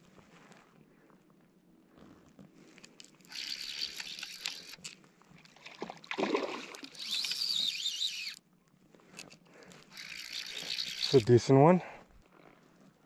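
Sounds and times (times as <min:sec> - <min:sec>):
fly reel ratchet buzzing: 0:03.2 - 0:04.9, 0:06.8 - 0:08.4, 0:09.9 - 0:11.5.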